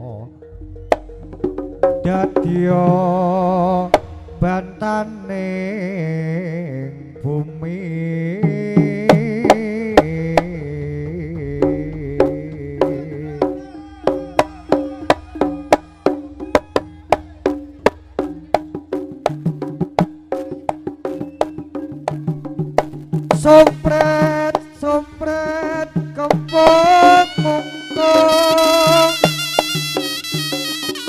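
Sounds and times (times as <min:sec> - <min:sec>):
hand drum strokes: 0:00.4 - 0:05.9, 0:08.5 - 0:31.0
wavering melodic line: 0:00.4 - 0:07.4.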